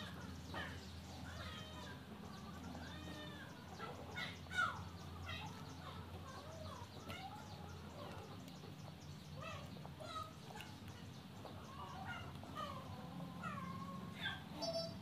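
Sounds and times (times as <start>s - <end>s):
animal chirping calls: 11.7s - 15.0s.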